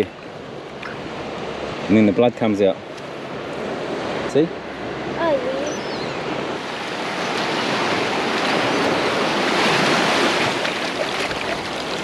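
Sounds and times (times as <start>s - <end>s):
small surf breaking: 6.7s - 12.0s.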